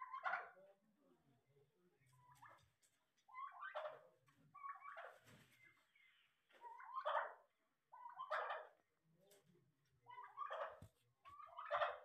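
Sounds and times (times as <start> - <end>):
turkey gobbling: 0.0 - 0.6, 3.2 - 8.9, 10.0 - 12.0.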